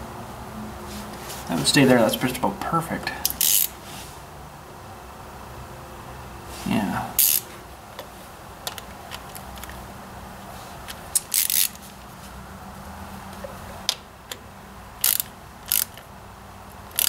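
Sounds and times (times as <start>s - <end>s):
socket ratchet clicking: 3.3s - 3.8s, 7.2s - 7.5s, 10.9s - 11.8s, 15.0s - 16.1s.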